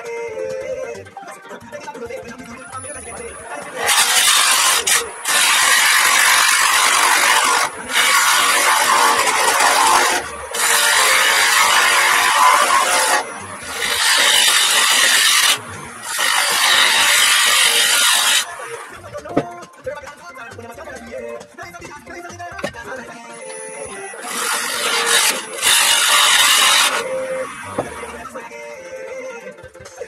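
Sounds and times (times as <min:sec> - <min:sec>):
lathe tool scraping spinning wood: 0:03.5 - 0:18.9, 0:23.6 - 0:28.4.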